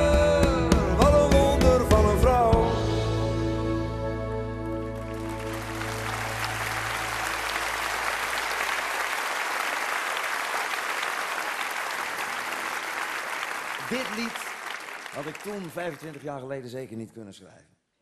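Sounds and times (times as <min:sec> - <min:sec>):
audience applause: 0:04.8 - 0:16.7.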